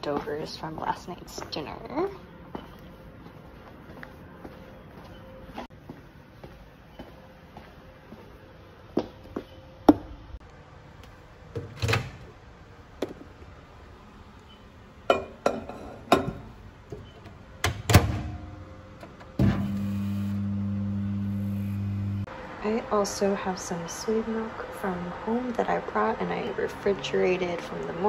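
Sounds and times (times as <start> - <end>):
microwave oven humming: 17.6 - 22.3.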